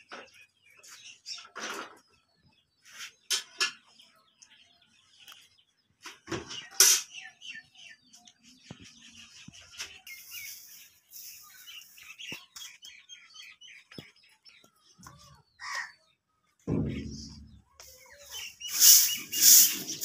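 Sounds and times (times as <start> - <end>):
small birds chirping: 0.0 - 20.0
broom knocking and rustling: 16.7 - 20.0.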